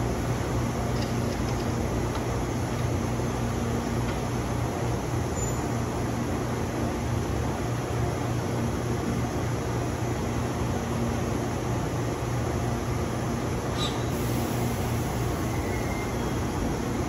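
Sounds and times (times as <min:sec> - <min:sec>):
electric train idling hum: 0:00.0 - 0:17.0
brief high squeak: 0:13.7 - 0:14.1, 0:15.5 - 0:16.3.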